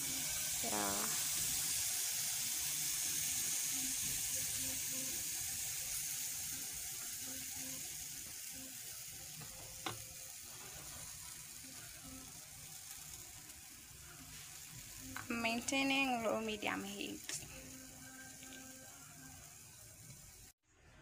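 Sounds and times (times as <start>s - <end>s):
batter sizzling in a pan: 0.0s - 20.6s.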